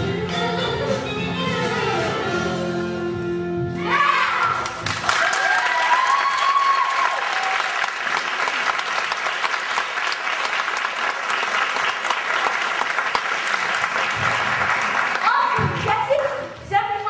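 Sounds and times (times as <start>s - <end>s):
audience applause: 4.6s - 16.3s.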